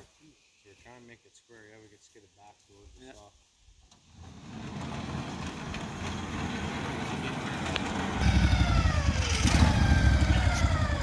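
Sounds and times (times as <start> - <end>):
gas engine running: 4.3 - 11.0
whining tones sliding down: 8.2 - 11.0.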